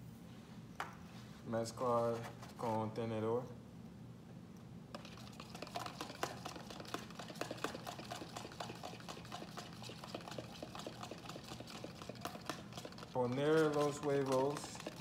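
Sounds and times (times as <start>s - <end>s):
fork beating eggs in container: 4.9s - 15.0s.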